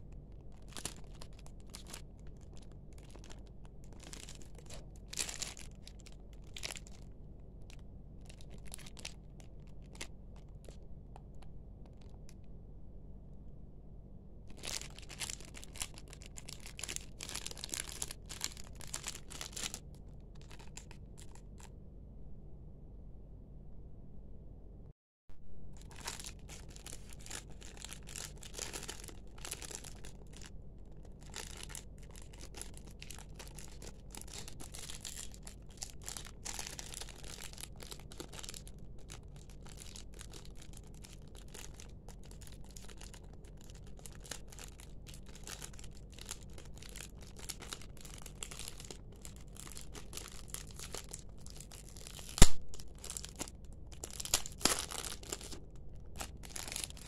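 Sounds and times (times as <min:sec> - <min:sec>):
plastic bag crinkling: 0:00.0 - 0:12.5, 0:14.5 - 0:21.7, 0:25.7 - 0:57.0
sharp loud snap: 0:52.4 - 0:52.8.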